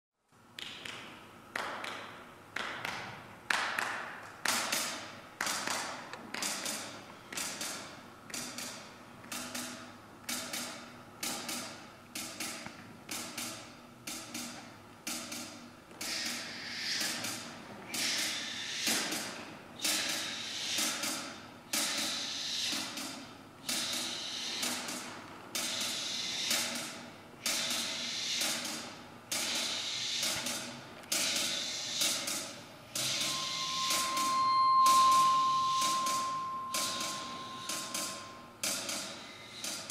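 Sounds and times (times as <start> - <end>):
hissing cymbal-like wash: 16.0 - 39.9
sharp percussive strikes ringing: 32.3 - 39.9.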